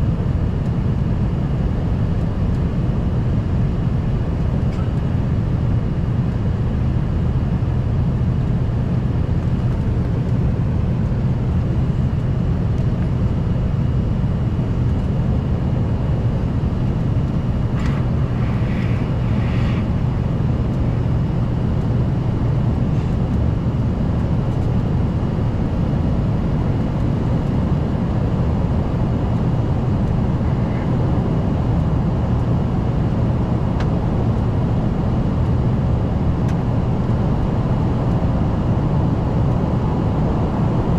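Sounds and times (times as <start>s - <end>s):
airplane cabin drone: 0.0s - 40.9s.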